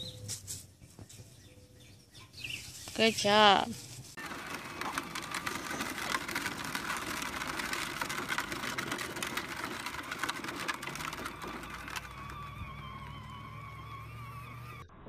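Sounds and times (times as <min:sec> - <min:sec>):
plastic wheels rolling on gravel: 0:04.2 - 0:14.8
small electric motor whirring: 0:04.2 - 0:14.9.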